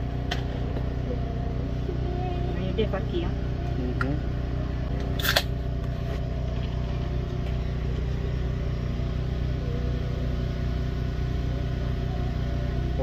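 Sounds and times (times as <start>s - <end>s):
car engine and road drone: 0.0s - 13.0s.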